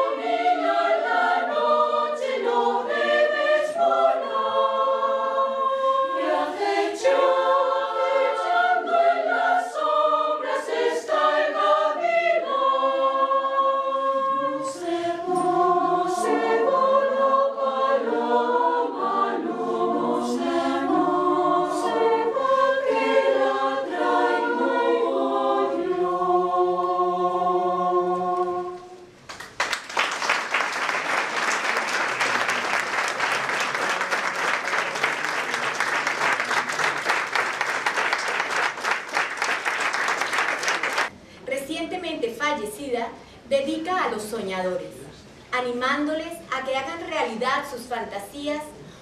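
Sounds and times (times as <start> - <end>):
women's choir singing: 0.0 - 29.1
audience applause: 29.3 - 41.1.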